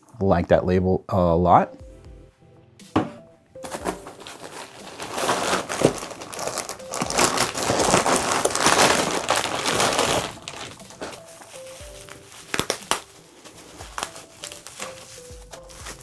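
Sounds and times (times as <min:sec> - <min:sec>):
plastic bag and bubble wrap crinkling: 0:03.6 - 0:16.0.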